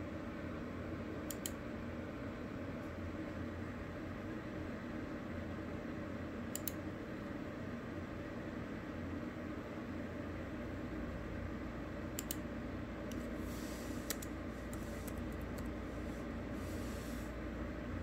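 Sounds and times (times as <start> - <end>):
steady low hum: 0.0 - 18.0
keyboard keystrokes clicking: 12.2 - 12.4.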